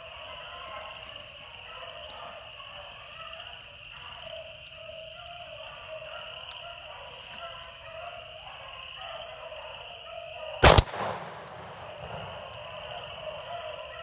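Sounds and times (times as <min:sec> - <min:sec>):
shotgun shot with echo: 0:10.6 - 0:12.6.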